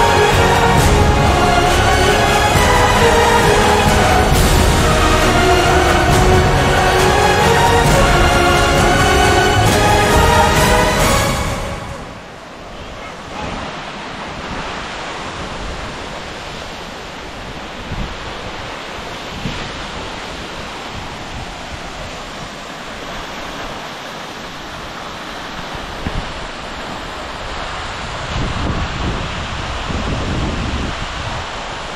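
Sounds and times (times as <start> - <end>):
waterfall rushing: 0.0 - 31.9
wind buffeting microphone: 24.6 - 31.9.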